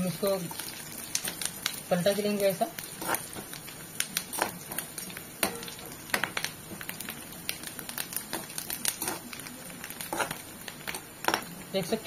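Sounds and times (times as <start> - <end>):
frying sizzle: 0.0 - 12.0
metal spatula scraping a pan: 2.9 - 3.3, 10.1 - 10.4.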